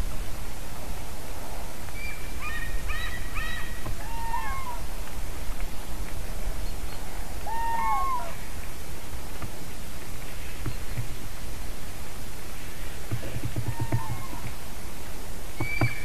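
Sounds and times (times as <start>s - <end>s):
steady hiss: 0.0s - 4.1s, 4.7s - 16.0s
cranes trumpeting: 13.2s - 14.7s.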